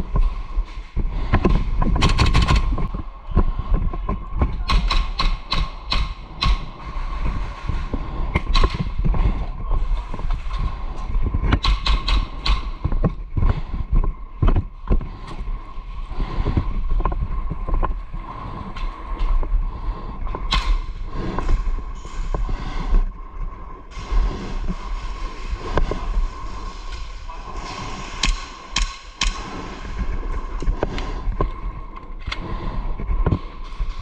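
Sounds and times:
rustling movement noise: 0.0 - 34.0
sharp snaps: 4.6 - 6.7, 11.6 - 12.8, 20.5 - 20.9, 28.2 - 29.6.

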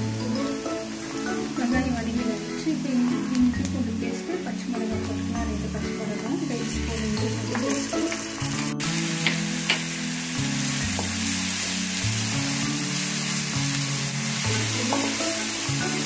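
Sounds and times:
onions sizzling in hot oil: 0.0 - 16.0
spatula tapping pan: 9.2 - 9.9, 14.8 - 15.2.

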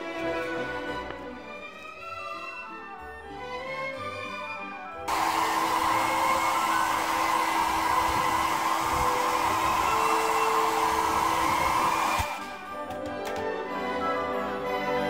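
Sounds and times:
hair dryer blowing: 5.1 - 13.4.

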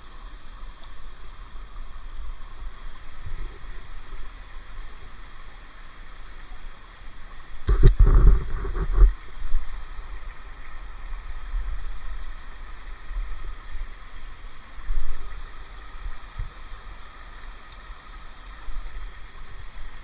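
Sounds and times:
camera handling rumble: 7.7 - 9.2.

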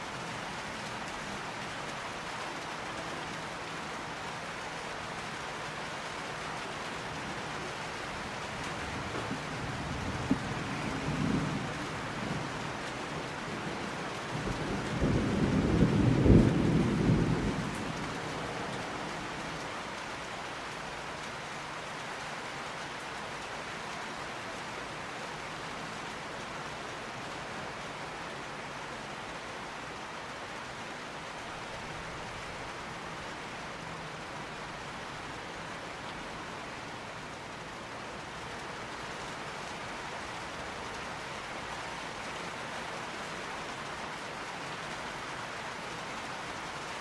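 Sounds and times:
steady rain: 0.0 - 47.0
rumble of thunder: 8.9 - 18.9.

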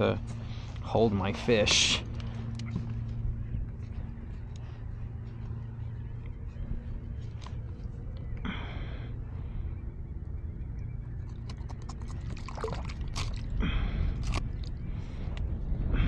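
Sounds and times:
wind rumbling on microphone: 0.0 - 16.0
light water splashing: 11.4 - 13.5.

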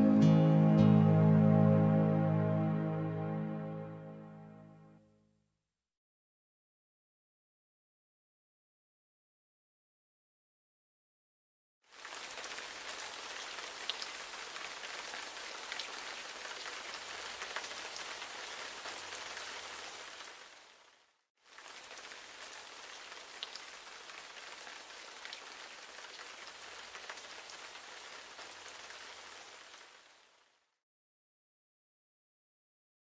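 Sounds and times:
steady rain falling: 11.9 - 30.8.

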